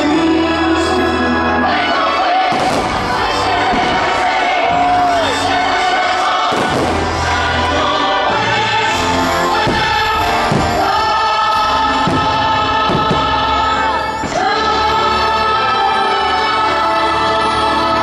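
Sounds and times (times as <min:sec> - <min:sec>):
choir singing over orchestral music: 0:00.0 - 0:18.0
firework bangs: 0:02.5 - 0:08.0, 0:09.5 - 0:14.4.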